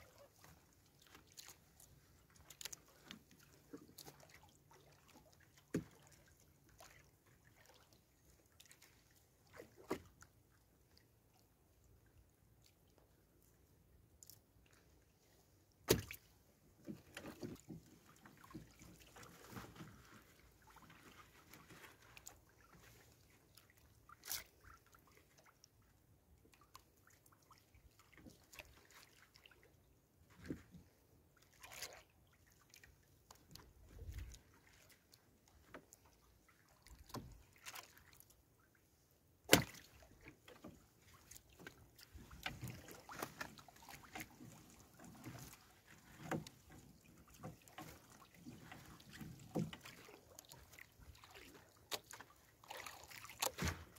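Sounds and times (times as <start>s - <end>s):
sharp knocks on wooden boat: 15.9s - 16.2s
fishing net rustling: 53.4s - 53.9s.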